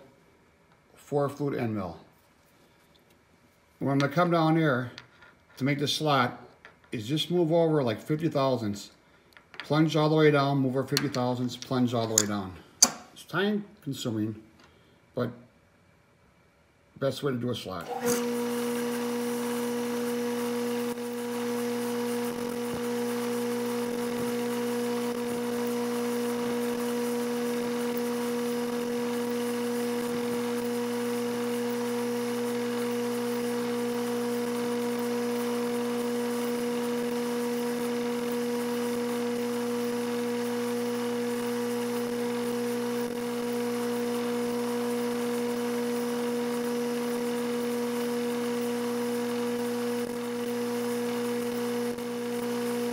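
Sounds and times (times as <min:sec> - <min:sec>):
end mill cutting steel: 0:17.9 - 0:52.9
milling machine spindle whine: 0:17.9 - 0:52.9.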